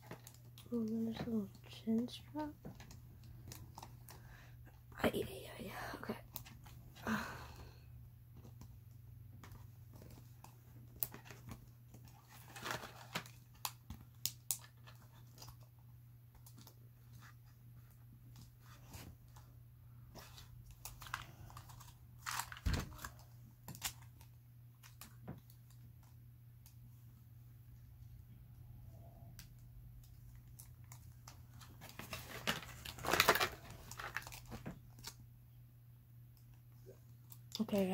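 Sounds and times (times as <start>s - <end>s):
hands handling plastic packaging: 8.4s - 19.5s, 20.1s - 26.2s, 29.4s - 35.3s.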